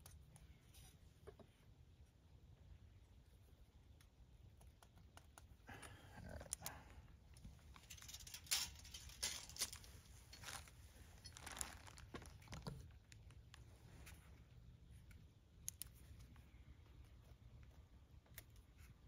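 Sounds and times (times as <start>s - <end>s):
low steady background hum: 0.0s - 19.0s
metal holder clicks and rustles: 7.7s - 13.0s.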